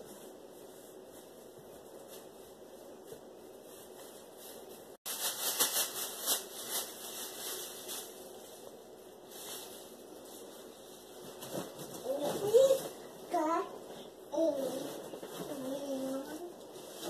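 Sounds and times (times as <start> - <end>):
scratchy rustling: 0.0 - 13.6
doppler speaker static hiss: 0.0 - 17.0.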